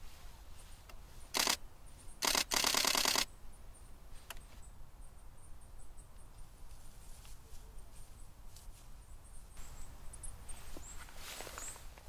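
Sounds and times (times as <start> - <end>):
camera shutter bursts: 1.4 - 1.6, 2.2 - 3.3.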